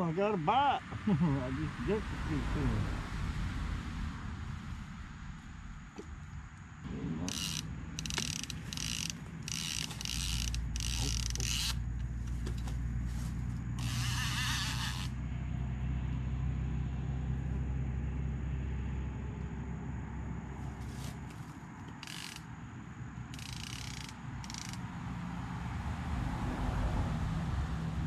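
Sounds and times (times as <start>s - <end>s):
low steady rumble: 0.8s - 28.0s
fishing reel drag buzzing: 7.3s - 12.0s, 13.8s - 15.2s, 21.9s - 22.5s, 23.3s - 24.8s.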